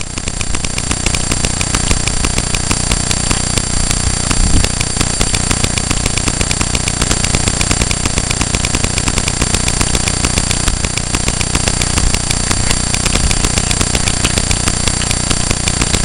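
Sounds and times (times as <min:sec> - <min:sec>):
electrical buzzing ticking: 0:00.0 - 0:16.0.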